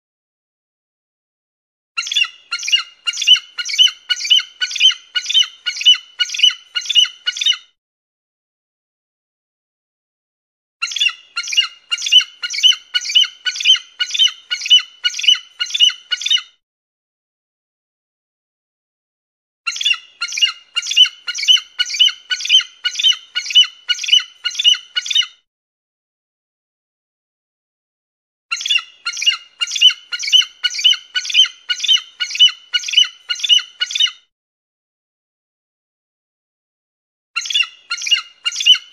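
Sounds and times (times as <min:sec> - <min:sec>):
eagle calling: 0:02.0 - 0:07.6, 0:10.8 - 0:16.5, 0:19.7 - 0:25.4, 0:28.5 - 0:34.2, 0:37.4 - 0:38.9.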